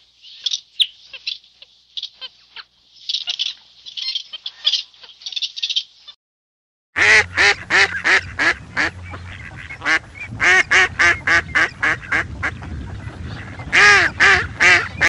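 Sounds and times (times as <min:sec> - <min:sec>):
duck quacking: 0:07.0 - 0:15.0.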